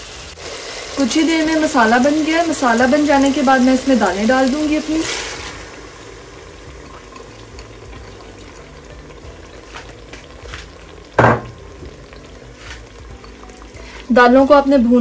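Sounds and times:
sizzling and bubbling: 0.0 - 15.0
lentils poured into pot: 0.4 - 10.8
sharp knock: 11.2 - 11.6.

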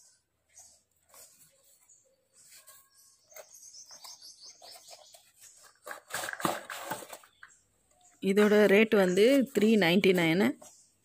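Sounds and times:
plastic scraping on cardboard box: 2.5 - 7.5.

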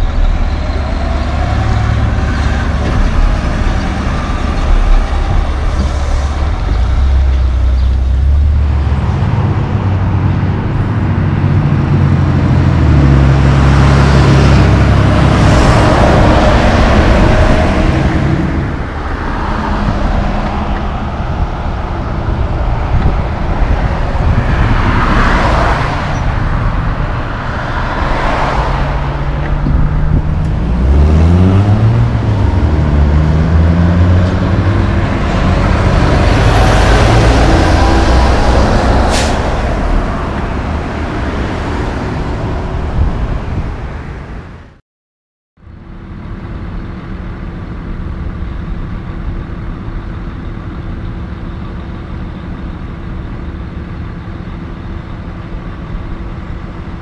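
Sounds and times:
truck engine pulling away: 0.0 - 43.4
traffic passing: 0.0 - 44.8.

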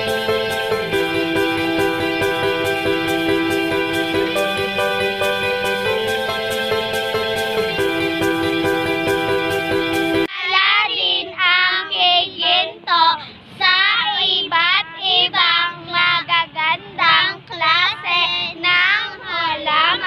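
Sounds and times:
music: 0.0 - 10.3
child singing: 10.3 - 20.0.

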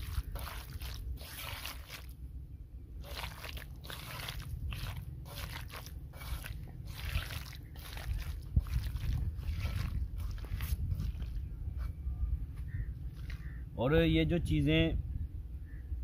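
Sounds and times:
hand squishing wet marinade: 0.0 - 2.2, 3.0 - 11.5.

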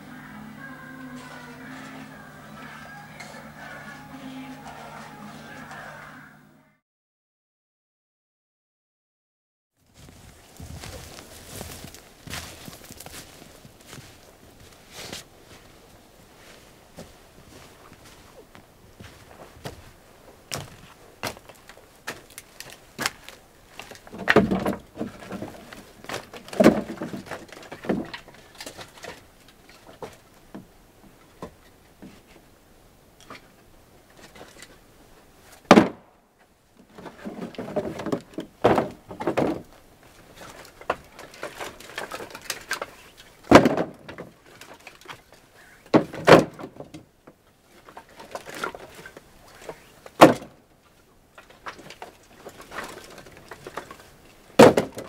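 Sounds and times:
wooden logs knocking and clattering: 20.5 - 32.5, 33.2 - 34.9, 35.6 - 55.0.

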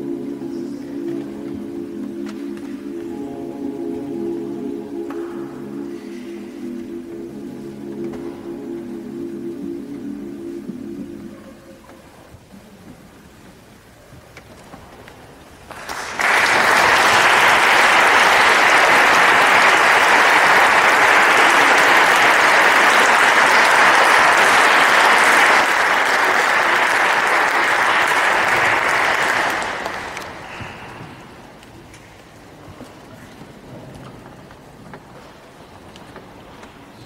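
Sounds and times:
audience applauding: 15.7 - 31.4.

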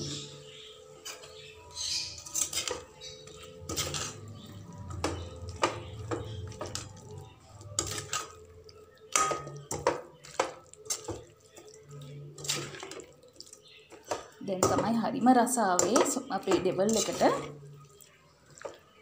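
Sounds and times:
spoon scraping metal pan: 1.0 - 6.9, 7.8 - 8.4, 15.7 - 17.6.

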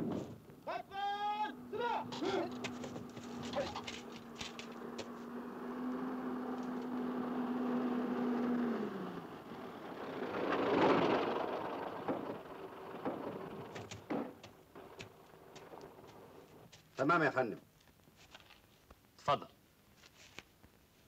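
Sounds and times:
jeep driving past on sand: 1.5 - 16.6.

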